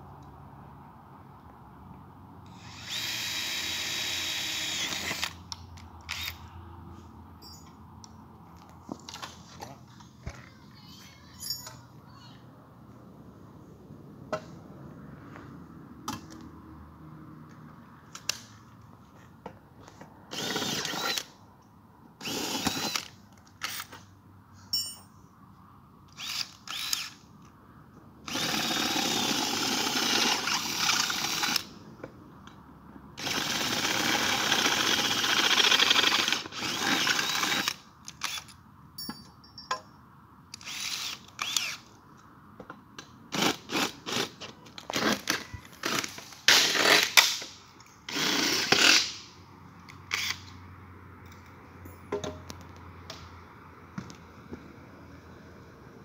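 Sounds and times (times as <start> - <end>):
cordless drill boring into aluminium: 2.5 - 5.4, 20.3 - 21.3, 22.2 - 23.1, 26.2 - 27.2, 28.3 - 31.7, 33.2 - 38.5, 40.6 - 41.8, 50.1 - 50.4.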